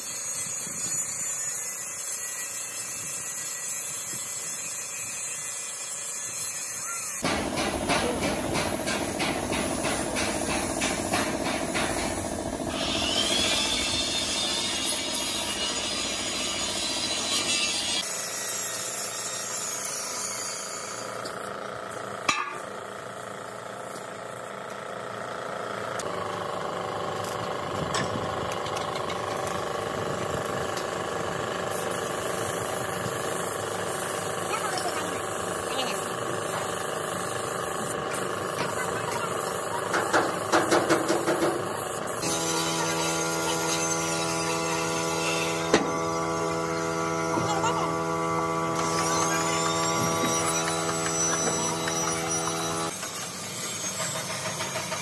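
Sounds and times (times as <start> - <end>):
paint spray gun hissing: 0.0 - 14.2, 20.6 - 25.2, 30.9 - 53.5
hammering on metal: 7.2 - 12.2.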